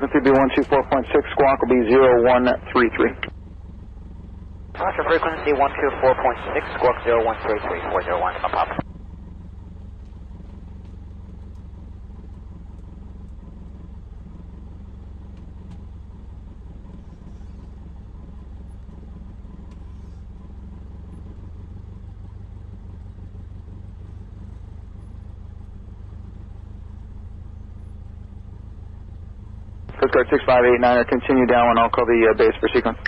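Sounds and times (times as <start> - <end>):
propeller plane engine droning: 0.0 - 33.0.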